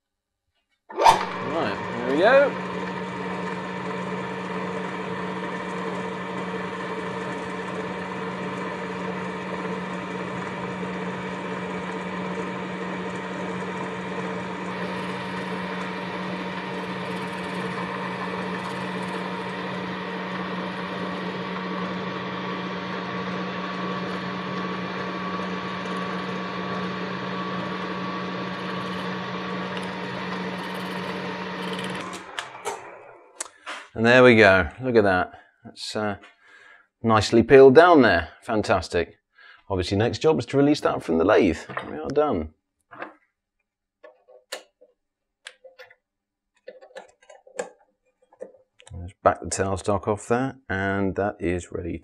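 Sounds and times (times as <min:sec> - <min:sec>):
metal lathe humming: 0:00.9 - 0:33.4.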